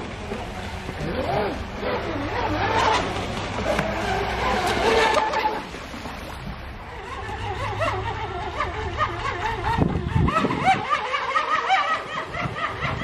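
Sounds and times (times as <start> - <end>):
toy speed boat rushing: 1.1 - 5.7, 6.9 - 13.0
high-pitched giggling laughter: 7.2 - 13.0.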